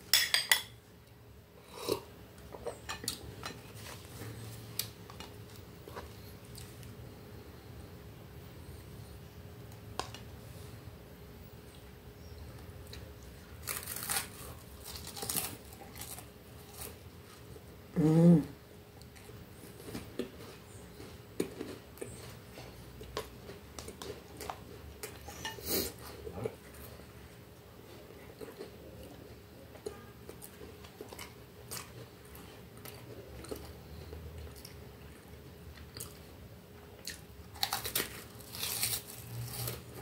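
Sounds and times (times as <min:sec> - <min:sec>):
woman humming: 0:17.9 - 0:18.6.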